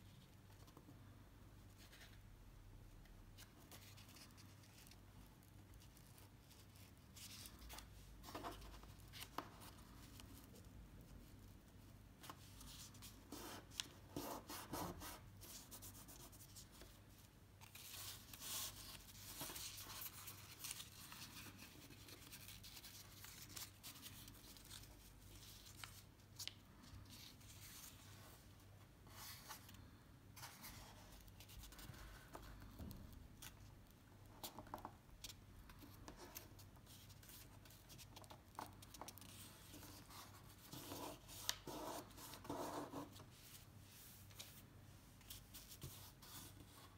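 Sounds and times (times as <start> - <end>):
paper rustling and creasing: 16.4 - 28.4.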